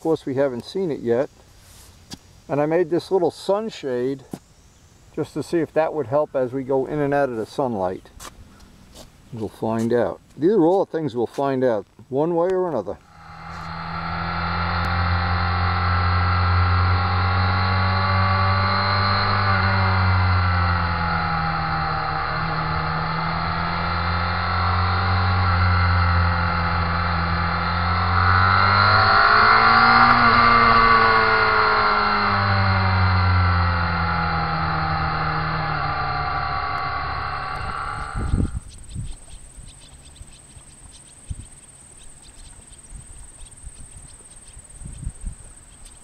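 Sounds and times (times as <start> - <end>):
motorcycle engine revving: 13.0 - 38.6.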